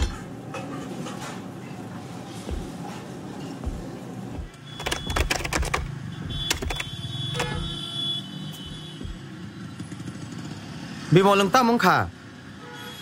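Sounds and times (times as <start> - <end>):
computer keyboard typing: 4.4 - 7.8.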